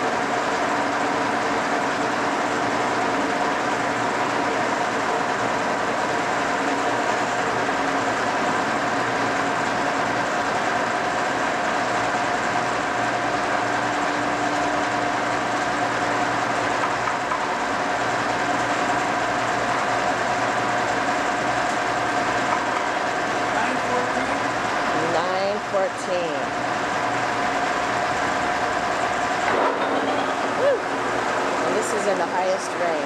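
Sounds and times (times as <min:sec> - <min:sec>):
milling machine hum with whining: 0:00.0 - 0:33.0.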